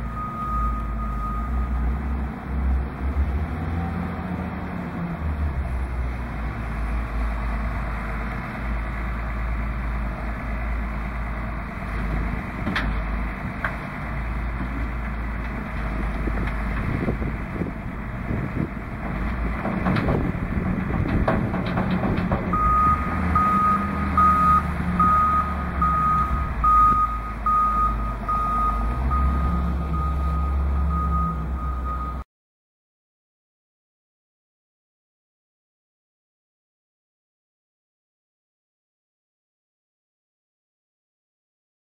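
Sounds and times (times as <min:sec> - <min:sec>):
reversing beeper: 0:00.0 - 0:01.8, 0:22.5 - 0:32.2
heavy diesel engines running: 0:00.0 - 0:32.2
dirt clattering into truck: 0:18.3 - 0:24.2.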